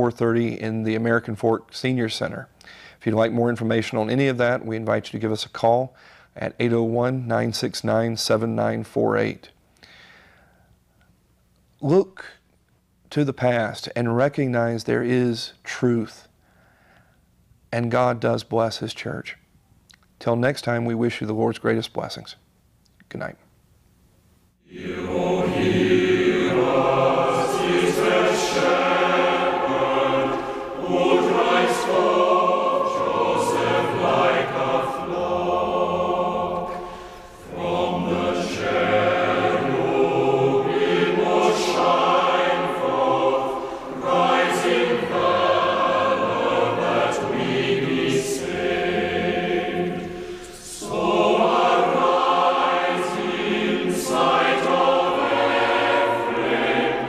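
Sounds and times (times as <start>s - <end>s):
choir breaths: 2.6s - 3.0s, 9.8s - 10.8s, 24.7s - 57.0s
choir singing slow piece: 24.6s - 57.0s.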